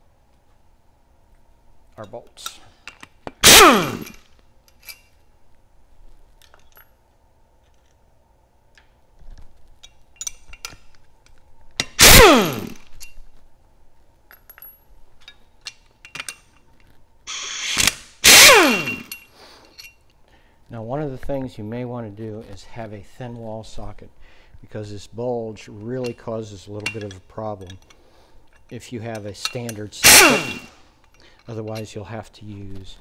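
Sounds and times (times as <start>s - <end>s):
impact wrench spinning: 3.4s - 4.3s, 11.8s - 13.0s, 17.3s - 19.2s, 29.4s - 30.8s
light clinks of socket and bolts: 4.0s - 5.2s, 9.8s - 12.0s, 14.3s - 17.0s, 18.8s - 20.2s, 25.8s - 32.0s.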